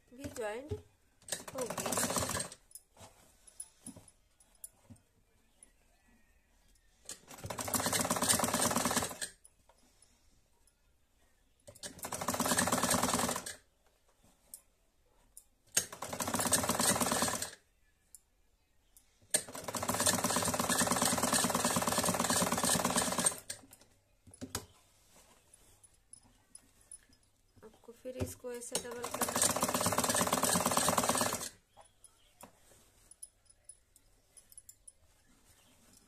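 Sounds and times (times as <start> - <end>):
sewing machine stitching: 1.2 - 2.6, 7.1 - 9.4, 11.8 - 13.6, 15.8 - 17.6, 19.4 - 23.6, 28.7 - 31.6.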